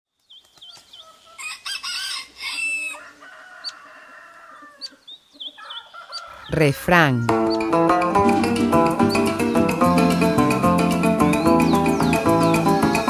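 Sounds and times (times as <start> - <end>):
rooster crowing: 1.3 - 7.6.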